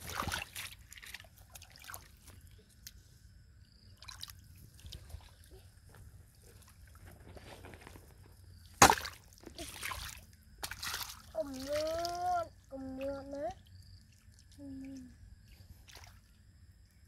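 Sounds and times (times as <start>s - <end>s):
faint dripping water: 9.8s - 16.5s.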